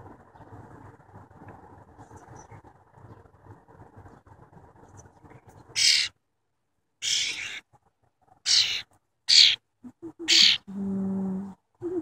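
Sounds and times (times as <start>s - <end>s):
bird giving harsh hissy calls: 5.8s - 6.2s, 7.0s - 7.6s, 8.5s - 9.6s, 10.3s - 10.6s.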